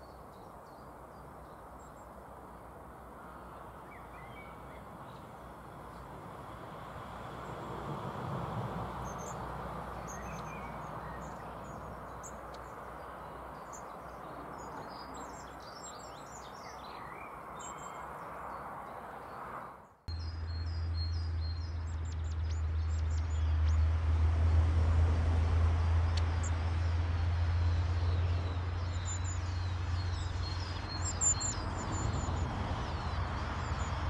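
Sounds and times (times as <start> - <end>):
small birds chirping: 0.0 - 8.0, 8.8 - 23.9, 26.1 - 34.0
outdoor background hiss: 0.0 - 20.0.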